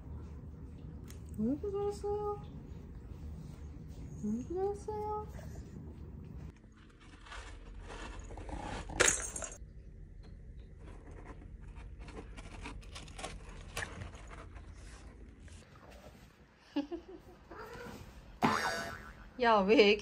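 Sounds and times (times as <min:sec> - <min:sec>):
kittens digging in cat litter: 0:06.5 - 0:09.3, 0:10.7 - 0:16.0.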